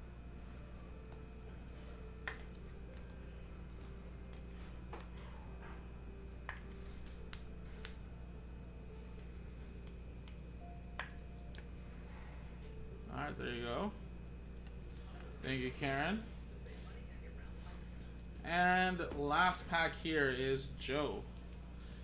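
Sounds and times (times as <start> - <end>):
high steady hiss: 0.0 - 22.0
steady low hum: 0.0 - 22.0
cards clicking and tapping: 2.2 - 5.2.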